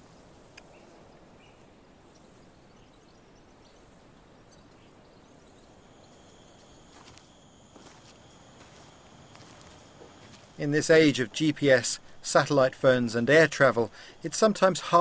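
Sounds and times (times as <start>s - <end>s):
outdoor background hiss: 0.0s - 15.0s
soft clicks: 0.5s - 0.7s
high-pitched insect drone: 5.1s - 15.0s.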